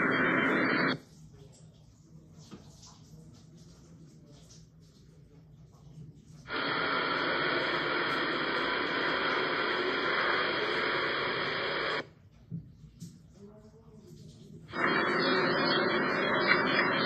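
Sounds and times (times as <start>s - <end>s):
electronic static hiss: 0.0s - 1.0s, 6.5s - 12.1s, 14.7s - 17.0s.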